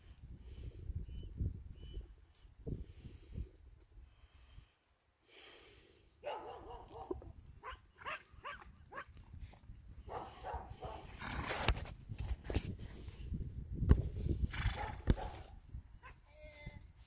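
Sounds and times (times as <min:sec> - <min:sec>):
animal yelps: 0:06.3 - 0:09.1.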